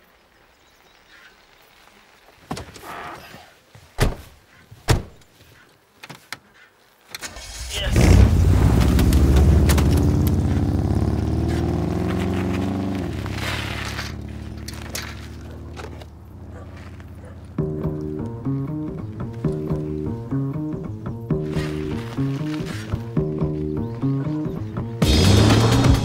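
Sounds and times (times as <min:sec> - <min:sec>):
car doors slamming: 0:04.9 - 0:05.2
car engine revving: 0:07.4 - 0:17.9, 0:25.0 - 0:26.0.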